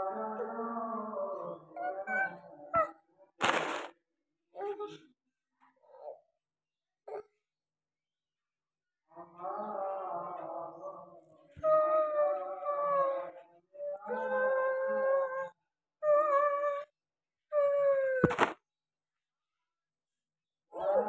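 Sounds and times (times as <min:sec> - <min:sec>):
long drawn-out howls: 0:00.0 - 0:03.0, 0:09.2 - 0:16.9, 0:20.7 - 0:21.0.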